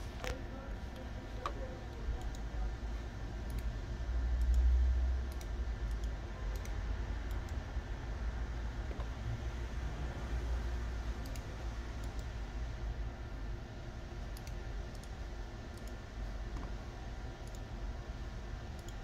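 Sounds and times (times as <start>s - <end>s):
steady low hum: 0.0s - 19.0s
computer mouse clicks: 1.4s - 2.5s, 3.4s - 3.7s, 4.4s - 4.7s, 5.3s - 7.6s, 11.2s - 12.3s, 14.3s - 16.8s, 17.4s - 17.7s, 18.7s - 19.0s.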